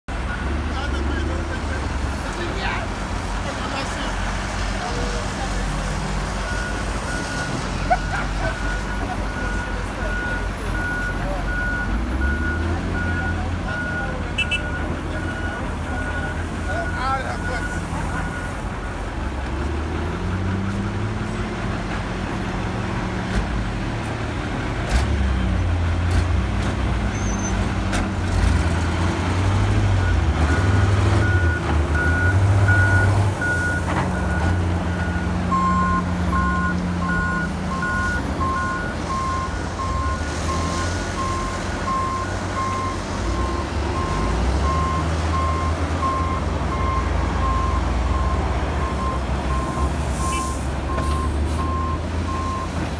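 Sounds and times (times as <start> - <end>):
excavator diesel engine: 0.1 - 52.9
reversing alarm beeping: 6.4 - 18.6, 30.0 - 52.8.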